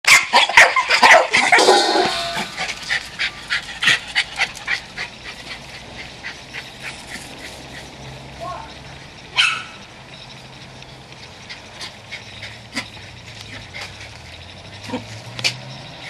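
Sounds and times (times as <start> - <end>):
dogs barking: 0.1 - 8.2, 9.3 - 9.9.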